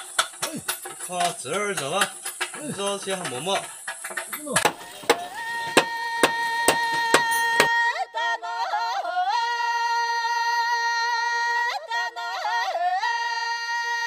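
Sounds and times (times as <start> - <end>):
machete chopping bamboo: 4.5 - 7.8.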